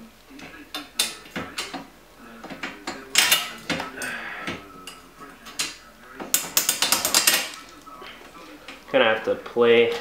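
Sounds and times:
metal clicking and rattling: 0:04.9 - 0:07.7.

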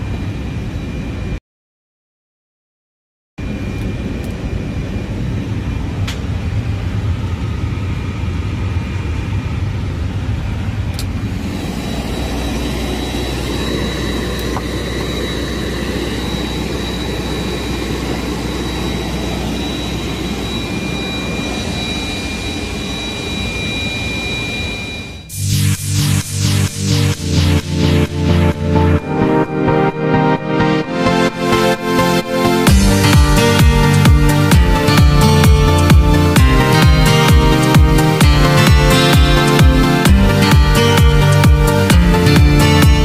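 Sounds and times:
aircraft systems hum: 0:00.0 - 0:01.4, 0:03.4 - 0:43.0
high whining tones: 0:11.0 - 0:43.0.

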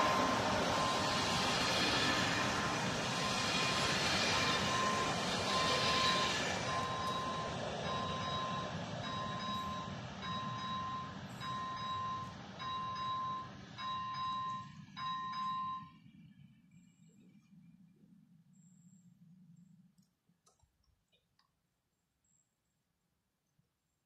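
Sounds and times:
train rolling past: 0:00.0 - 0:16.5
level crossing bell ringing: 0:04.7 - 0:15.9.

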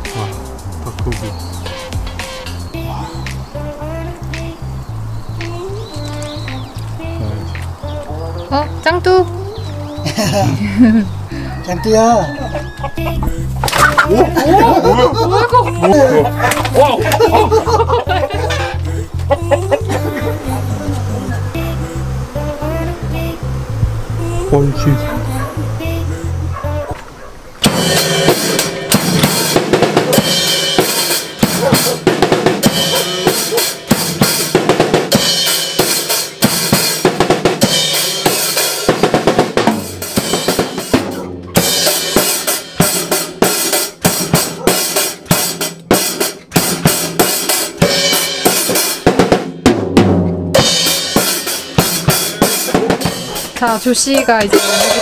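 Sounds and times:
drum kit fast groove: 0:00.0 - 0:02.7, 0:11.9 - 0:20.8, 0:27.6 - 0:55.0.

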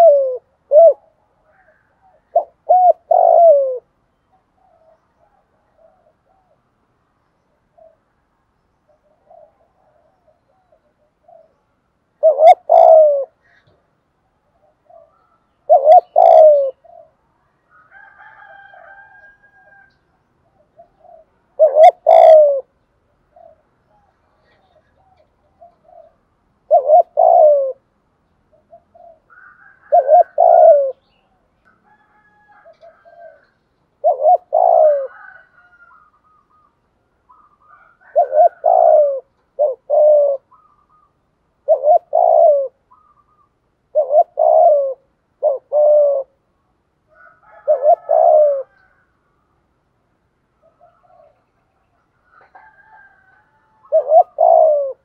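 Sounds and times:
dove cooing: 0:00.0 - 0:06.9, 0:07.5 - 0:08.1, 0:08.9 - 0:49.2, 0:50.6 - 0:55.0
small birds chirping: 0:35.9 - 0:38.1, 0:39.3 - 0:41.2, 0:41.8 - 0:43.6.

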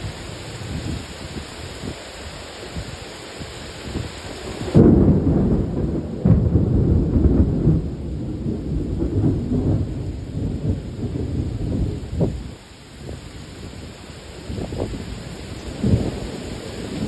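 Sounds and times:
heavy rain: 0:00.0 - 0:17.0
thunder crack and rumble: 0:04.6 - 0:13.2, 0:15.7 - 0:17.0.

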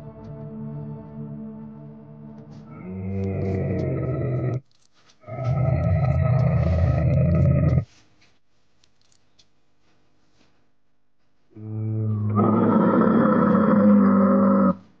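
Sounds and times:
long low dinosaur call: 0:02.7 - 0:04.6, 0:05.3 - 0:07.8, 0:11.6 - 0:14.9.

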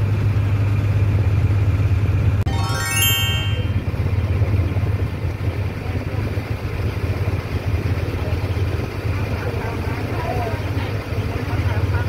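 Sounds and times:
boat engine humming: 0:06.2 - 0:12.0.

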